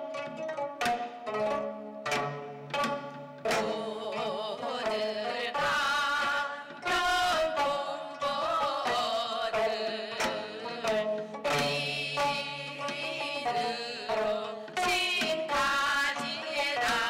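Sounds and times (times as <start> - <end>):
plucked zither: 0.0 - 17.0
woman singing with vibrato: 3.5 - 17.0.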